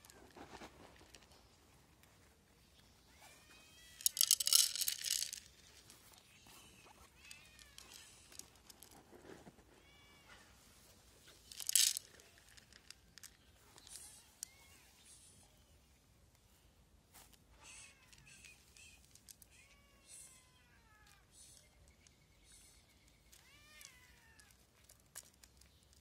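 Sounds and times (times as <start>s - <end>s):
cat crunching dry kibble: 4.0s - 6.2s, 11.4s - 13.3s.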